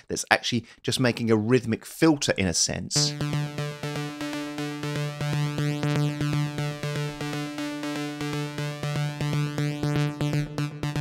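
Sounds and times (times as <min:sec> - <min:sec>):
pulsing synthesizer chord: 0:03.0 - 0:11.0.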